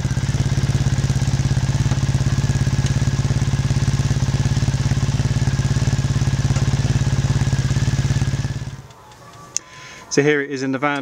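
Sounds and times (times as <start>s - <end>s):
motorcycle engine idling: 0.0s - 9.0s.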